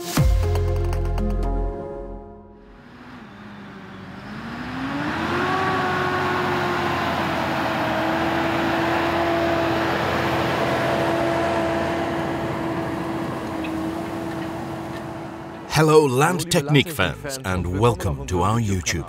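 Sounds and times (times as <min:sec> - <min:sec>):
implement rushing through soil: 0:02.8 - 0:15.7
tractor engine under load: 0:02.8 - 0:17.1.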